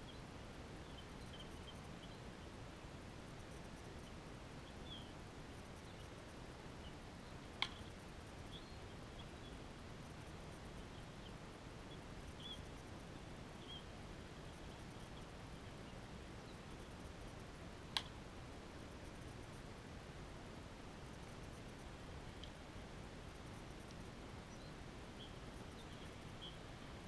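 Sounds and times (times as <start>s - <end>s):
faint bird chirps: 0.0s - 2.5s, 3.5s - 17.1s, 23.4s - 27.0s.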